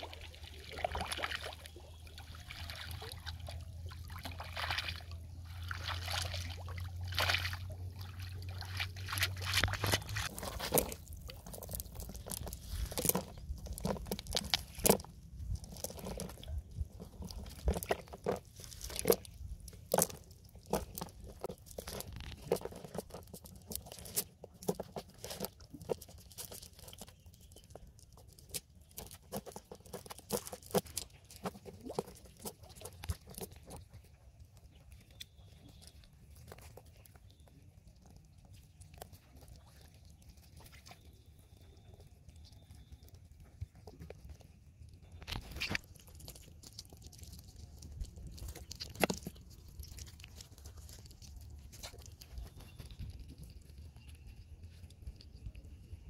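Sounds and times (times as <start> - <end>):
water splashing and dripping: 0.0 - 12.9.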